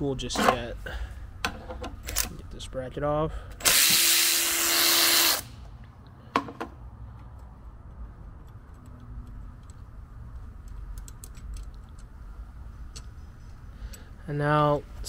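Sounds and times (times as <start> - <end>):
electric ratchet whirring: 3.6 - 5.6
sharp metal clicks: 7.3 - 12.2.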